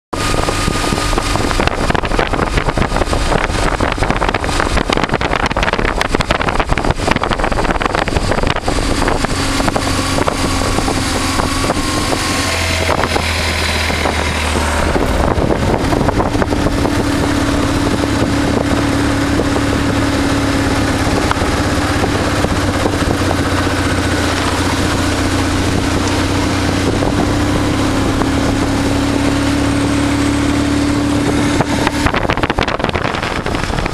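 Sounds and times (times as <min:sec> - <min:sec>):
motorcycle engine running: 0:00.2 - 0:33.9
wind buffeting microphone: 0:00.2 - 0:33.9.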